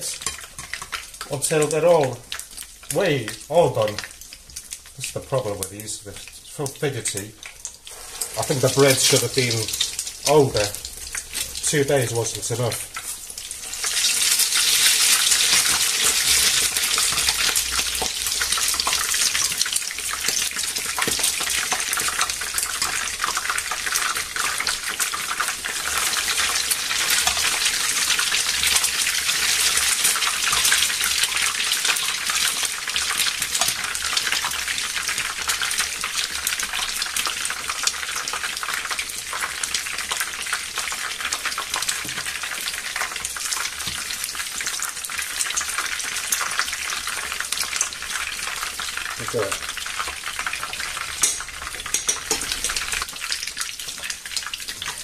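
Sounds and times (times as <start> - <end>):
oil sizzling in a frying pan: 0.0 - 55.0.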